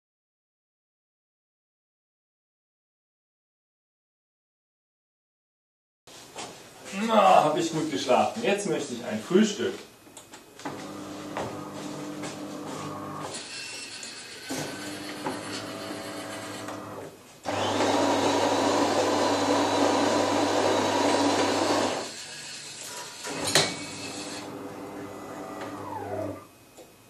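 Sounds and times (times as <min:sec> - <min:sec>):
loud machine noise with hum: 0:10.7 - 0:26.5
small electric motors whirring: 0:13.3 - 0:26.5.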